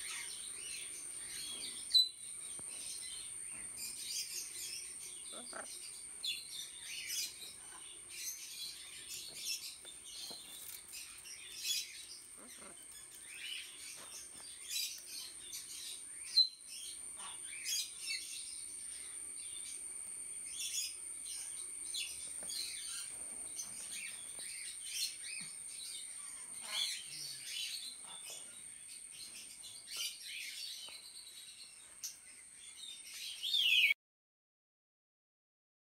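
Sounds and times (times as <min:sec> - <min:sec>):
bird chirps and calls: 0:00.0 - 0:18.4, 0:20.6 - 0:28.6, 0:32.8 - 0:34.0
steady high-pitched whine: 0:00.0 - 0:33.6.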